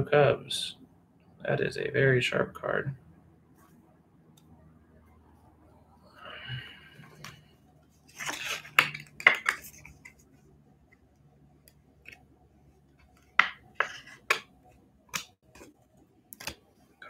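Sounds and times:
cards rustling: 7.1 - 11.1, 12.8 - 14.5.

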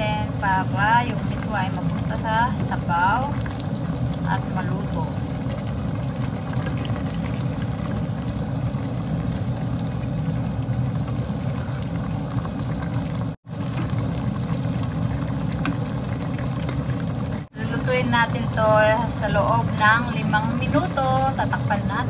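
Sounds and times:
soup bubbling at a boil: 0.0 - 22.0
wooden spatula stirring pot: 15.0 - 17.5.

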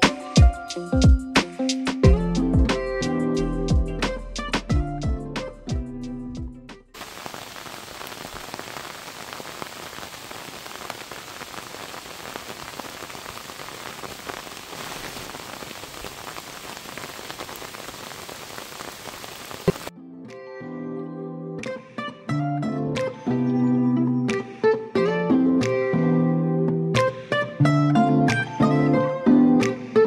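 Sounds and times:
water hissing and pattering: 7.0 - 19.9
acoustic guitar music: 21.6 - 30.0.

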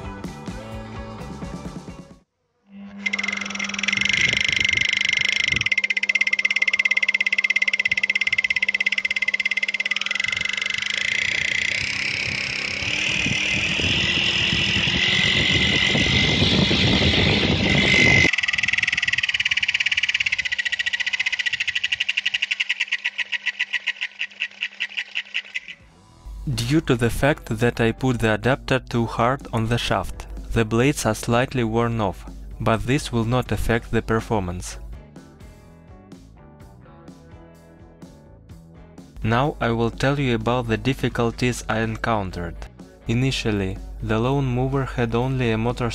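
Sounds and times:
lawn mower motor whine: 2.7 - 25.8
trimmer head whirring down: 2.8 - 25.7
rushing noise: 10.2 - 20.9.

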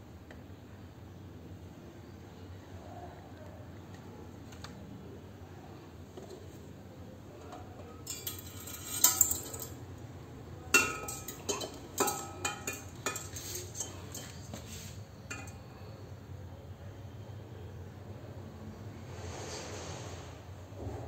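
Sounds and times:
metal clinks: 7.9 - 9.8, 10.8 - 14.5.

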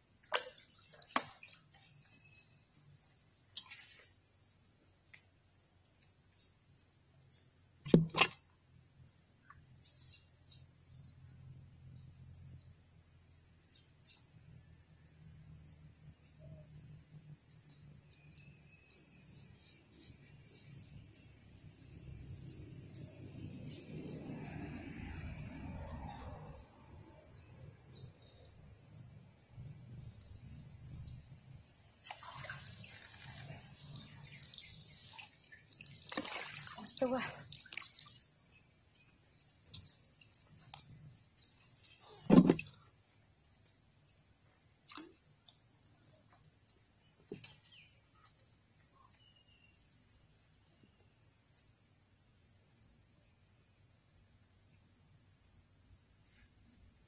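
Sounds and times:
water splashing off a net: 0.3 - 1.8, 7.8 - 8.5, 32.0 - 38.3, 41.9 - 42.8
small birds chirping: 32.8 - 36.1, 36.7 - 51.0.

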